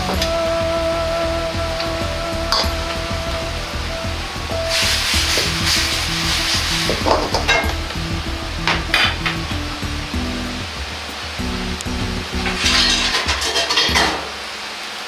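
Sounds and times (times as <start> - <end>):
background music: 0.0 - 14.6
syrup bubbling and hissing: 1.7 - 14.6
metal ladle scraping wok: 12.4 - 14.3.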